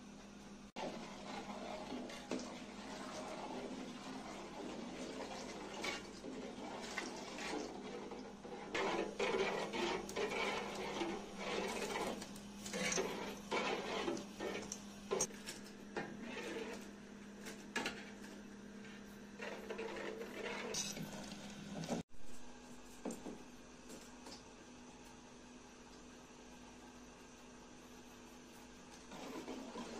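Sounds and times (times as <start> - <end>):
metal spoon scraping a pot: 0.8 - 15.3, 16.0 - 16.9, 19.4 - 21.1.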